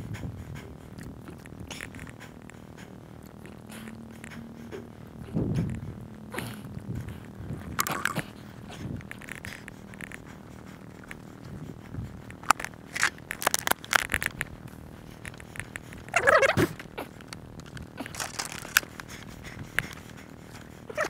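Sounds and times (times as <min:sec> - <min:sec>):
gear clicking and knocking: 0:06.9 - 0:20.6
plastic bottle crackling: 0:07.8 - 0:08.4, 0:12.4 - 0:14.5, 0:15.2 - 0:19.1.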